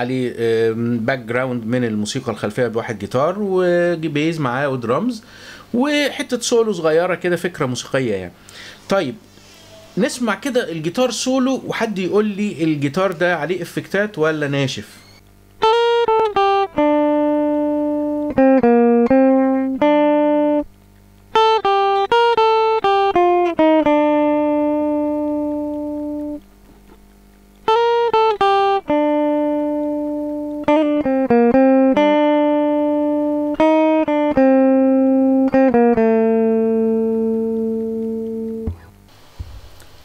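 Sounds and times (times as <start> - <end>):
clean lead guitar solo: 15.0 - 26.4, 27.6 - 39.0.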